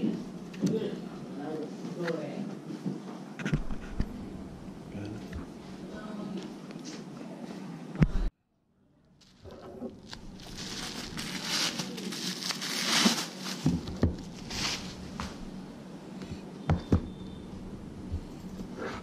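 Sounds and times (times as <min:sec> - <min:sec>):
bubble wrap rustling and crinkling: 0:09.2 - 0:15.5.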